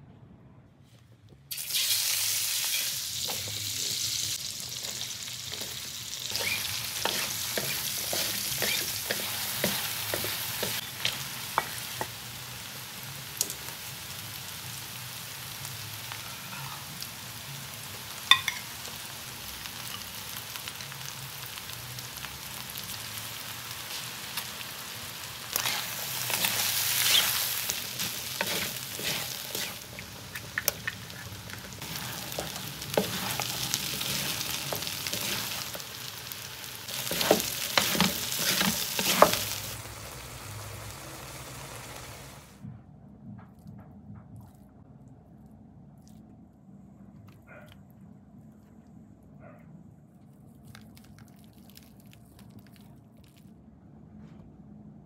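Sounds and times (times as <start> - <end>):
food sizzling in oil: 1.5 - 42.6
wooden spatulas scraping pan: 25.6 - 30.0, 30.8 - 35.6, 36.9 - 39.6.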